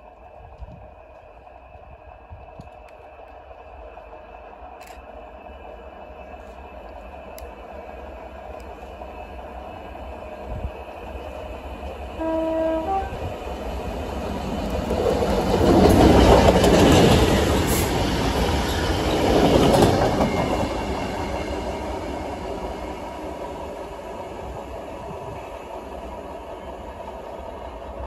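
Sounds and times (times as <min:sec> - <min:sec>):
locomotive engine and wheels on rail: 0:00.0 - 0:28.0
rail clicks: 0:00.0 - 0:28.0
two-tone locomotive horn: 0:12.2 - 0:13.3.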